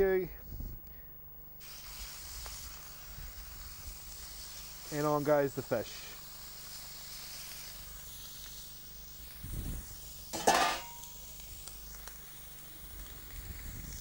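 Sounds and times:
fish sizzling on a hotplate: 1.6s - 14.0s
metallic clank with ring: 10.4s - 11.2s.

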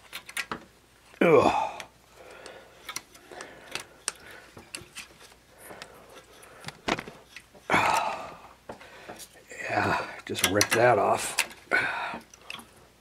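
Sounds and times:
short grunt of effort: 1.2s - 1.9s, 7.7s - 8.4s
pliers and metal parts clicking: 10.3s - 11.6s.

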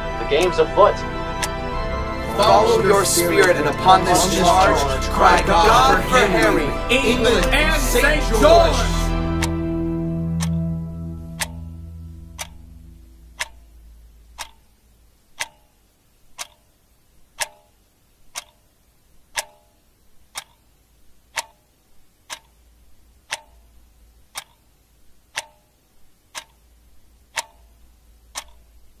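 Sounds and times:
clock ticking: 0.0s - 29.0s.

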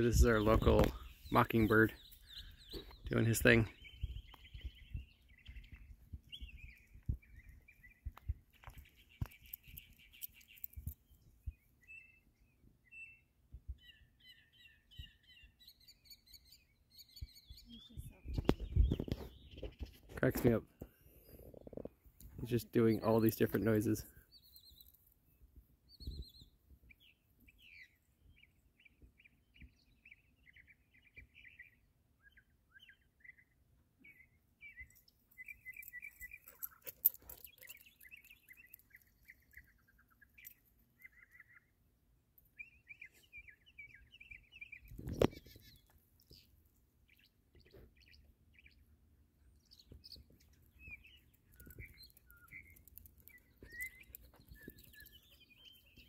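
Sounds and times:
mockingbird singing: 0.0s - 13.2s, 22.3s - 25.0s, 25.9s - 41.8s, 42.5s - 46.5s, 49.6s - 56.0s.

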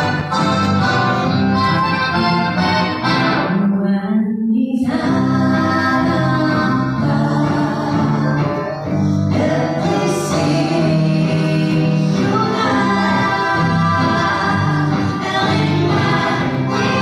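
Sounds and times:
accordion: 0.0s - 3.6s, 5.2s - 17.0s
guitar: 0.0s - 17.0s
women singing together: 3.5s - 17.0s.

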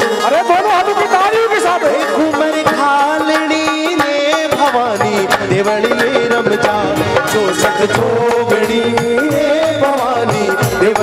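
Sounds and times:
harmonium melody: 0.0s - 11.0s
hand drum playing: 0.4s - 11.0s.

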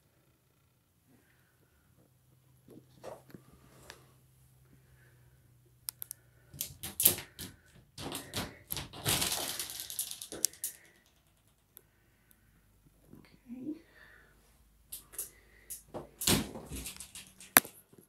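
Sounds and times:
shower door frame rattling: 6.5s - 11.6s, 15.0s - 17.8s
shower door scraping: 15.9s - 17.6s.

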